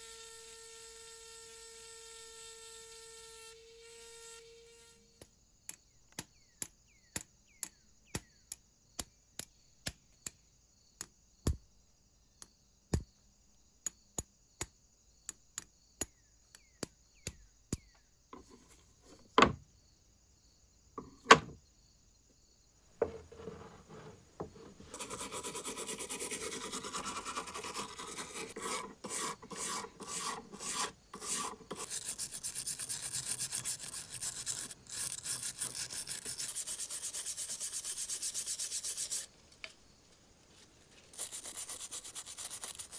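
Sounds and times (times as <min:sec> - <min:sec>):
brush scrubbing metal blade: 0:24.7 - 0:39.3, 0:41.1 - 0:42.9.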